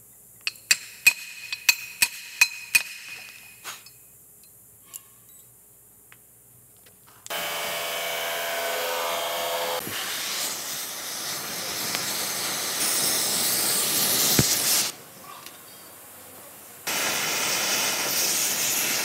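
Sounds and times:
gas cutting torch hissing: 9.4 - 15.0, 16.8 - 19.0.

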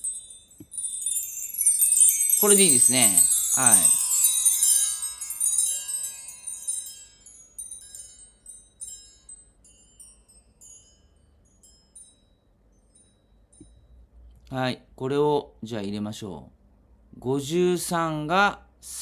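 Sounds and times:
chime tree tinkling: 0.0 - 14.3.

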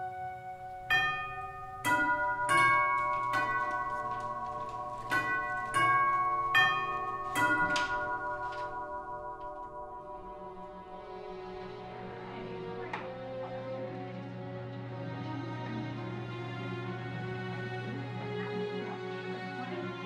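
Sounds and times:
tubular door chime melody: 0.0 - 13.4.

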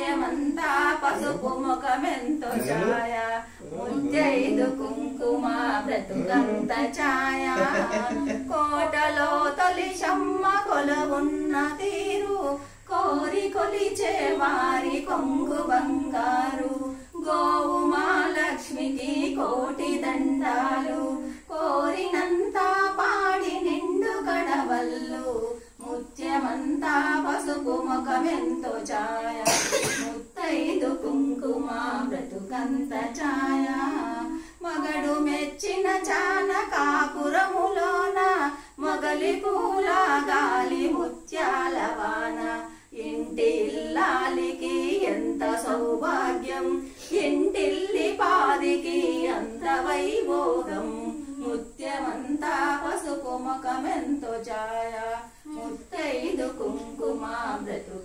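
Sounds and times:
women singing unaccompanied: 0.0 - 58.0
cough: 29.4 - 30.2.

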